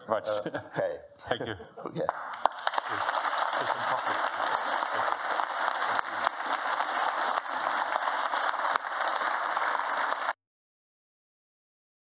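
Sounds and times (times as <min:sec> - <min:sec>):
audience applauding: 0:02.1 - 0:10.4.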